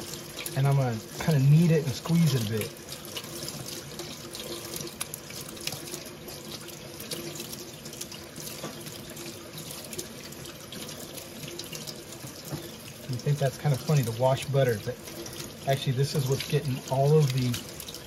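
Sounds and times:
tap water splashing into sink: 0.0 - 18.0.

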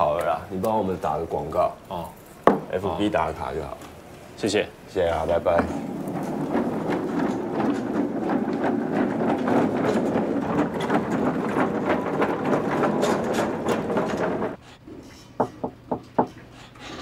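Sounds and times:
hand truck rolling on hard floor: 4.9 - 14.6
crates rattling: 5.0 - 14.6.

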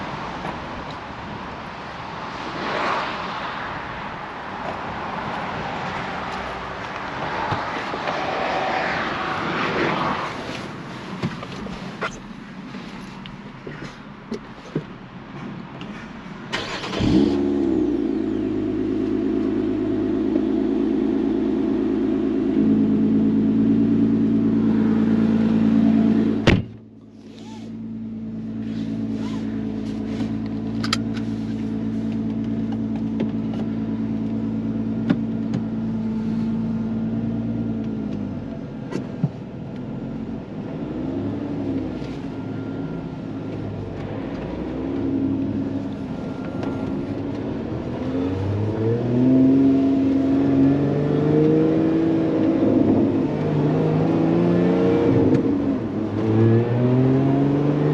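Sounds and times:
car engine idling and revving: 0.0 - 57.9
car door shutting: 26.3 - 27.8.

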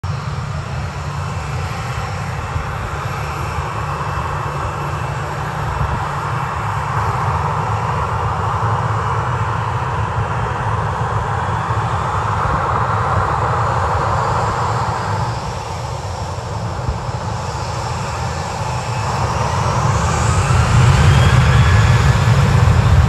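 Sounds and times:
jet engines rumbling: 0.0 - 23.0.

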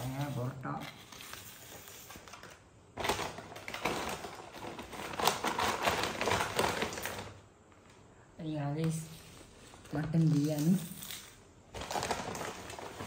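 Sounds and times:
carry bag rustling and crinkling: 11.7 - 13.0.

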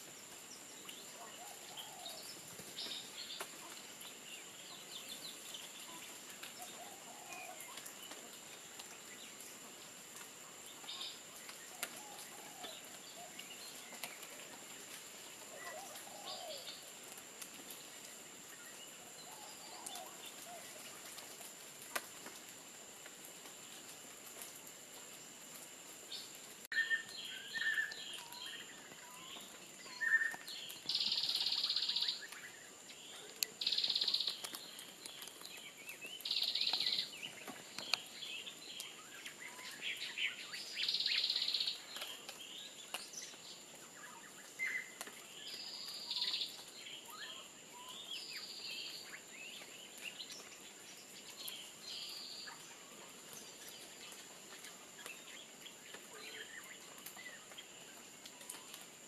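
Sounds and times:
bird chirps: 26.7 - 57.7.

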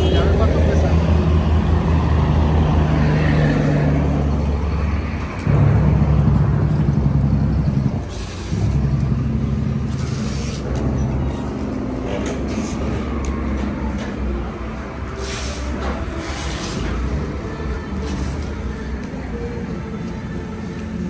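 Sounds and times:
forklift engine running: 4.2 - 21.0.

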